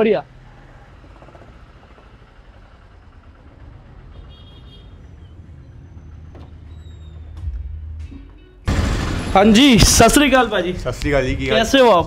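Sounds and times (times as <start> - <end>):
traffic engines rumbling: 0.0 - 12.0.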